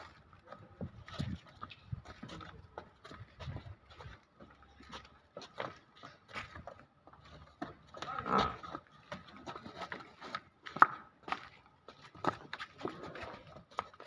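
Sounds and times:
hooves on brick paving: 0:00.0 - 0:14.0.

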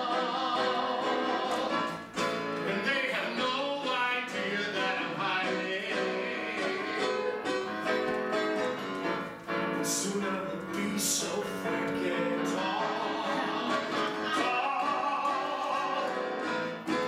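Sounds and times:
electric keyboard piano: 0:00.0 - 0:03.0, 0:04.0 - 0:17.0
man singing: 0:02.6 - 0:07.3, 0:09.8 - 0:17.0.

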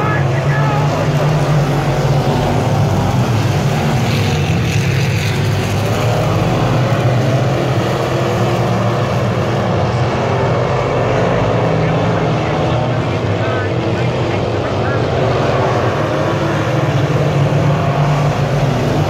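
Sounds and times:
race car engines droning: 0:00.0 - 0:19.0.

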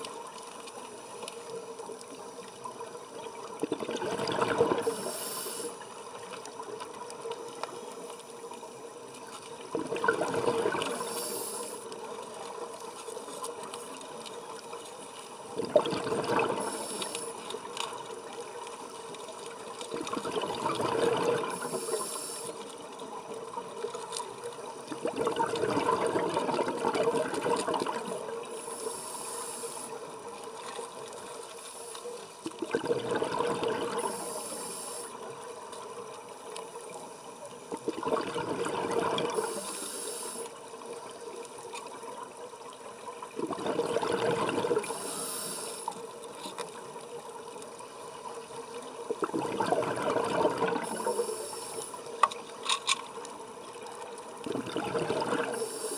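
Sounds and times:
exhaled bubbles rushing: 0:03.6 - 0:05.0, 0:09.7 - 0:11.2, 0:15.6 - 0:16.8, 0:19.9 - 0:21.8, 0:24.9 - 0:28.4, 0:32.5 - 0:34.2, 0:37.7 - 0:39.6, 0:43.3 - 0:44.9, 0:49.1 - 0:51.2, 0:54.4 - 0:55.6
hissing regulator inhalation: 0:04.7 - 0:05.8, 0:10.8 - 0:11.9, 0:16.4 - 0:17.4, 0:21.4 - 0:22.7, 0:28.5 - 0:30.0, 0:33.8 - 0:35.2, 0:39.3 - 0:40.5, 0:44.8 - 0:46.0, 0:50.5 - 0:52.1, 0:55.4 - 0:55.9.

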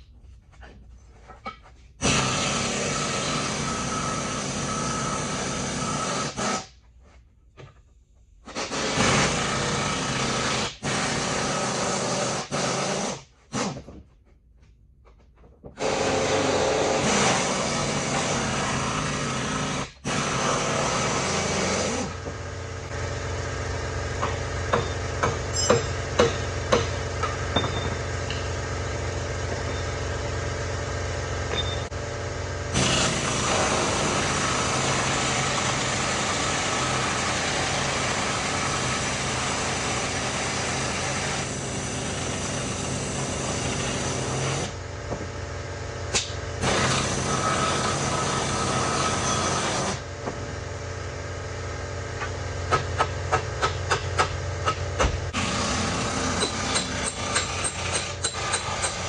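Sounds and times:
steady mechanical hum: 0:00.0 - 0:59.0
pneumatic impact wrench bursts: 0:02.0 - 0:06.8, 0:08.4 - 0:13.8, 0:15.8 - 0:22.6, 0:32.7 - 0:44.8, 0:46.1 - 0:50.1, 0:55.2 - 0:59.0.

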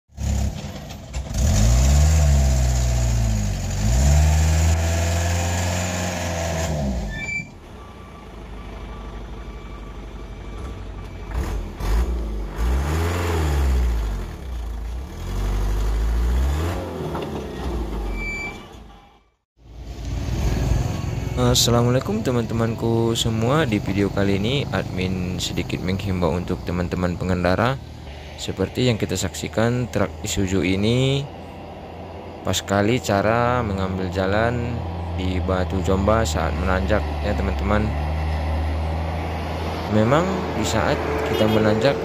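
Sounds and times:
truck engine revving hard: 0:00.1 - 0:07.2, 0:10.6 - 0:18.2, 0:20.0 - 0:42.0.

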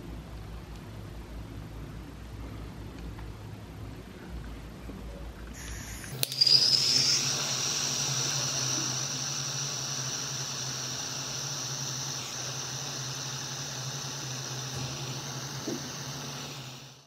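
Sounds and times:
high steady whine: 0:05.6 - 0:17.0
hot air gun hissing: 0:05.6 - 0:17.0.

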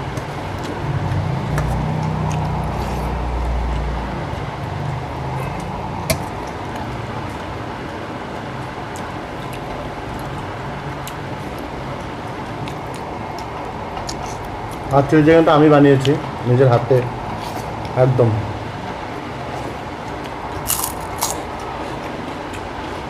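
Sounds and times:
low vehicle rumble: 0:00.0 - 0:15.0.

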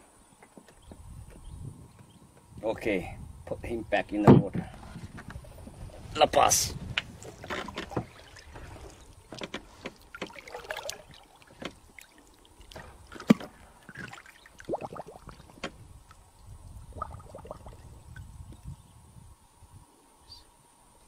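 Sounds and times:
water sloshing and splashing: 0:07.1 - 0:18.2.

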